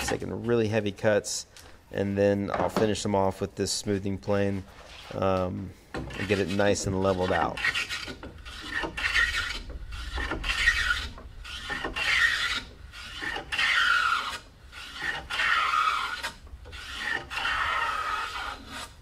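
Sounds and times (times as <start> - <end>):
hand plane shaving wood: 6.0 - 19.0.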